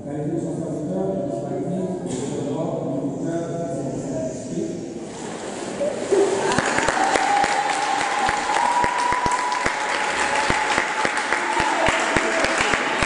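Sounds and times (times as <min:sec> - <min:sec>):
people clapping: 0:06.3 - 0:13.0.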